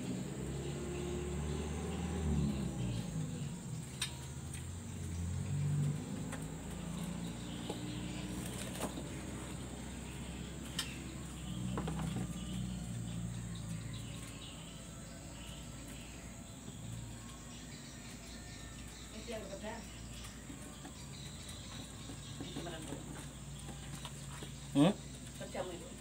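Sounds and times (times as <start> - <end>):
faint bird chirps: 6.4 - 26.0.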